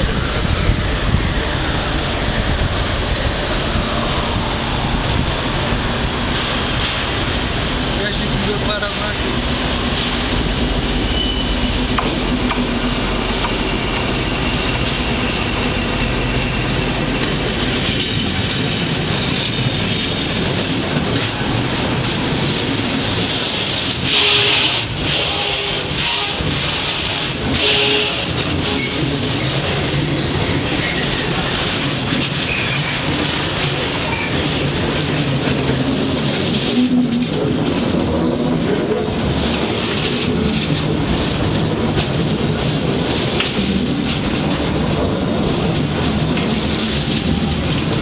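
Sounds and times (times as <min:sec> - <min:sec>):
freight train wheels rumbling: 0:00.0 - 0:48.0
high-pitched wheel squeals: 0:11.1 - 0:11.7.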